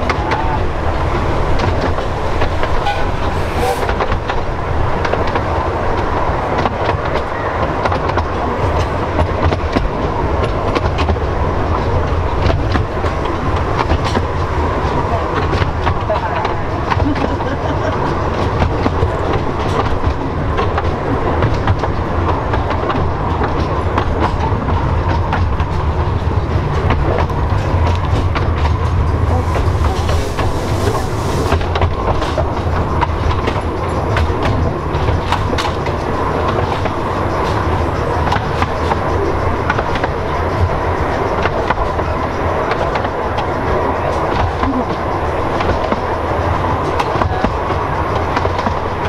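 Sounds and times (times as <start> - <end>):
clicks from rail joints: 0.0 - 49.0
train wheels rumbling: 0.0 - 49.0
brief hiss: 2.7 - 4.2, 29.3 - 31.7.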